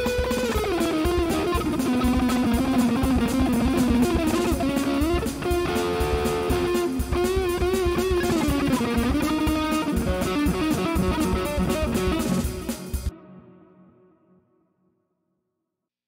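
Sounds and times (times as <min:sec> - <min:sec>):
drum beat: 0:00.0 - 0:13.1
distorted electric guitar lead: 0:00.0 - 0:14.3.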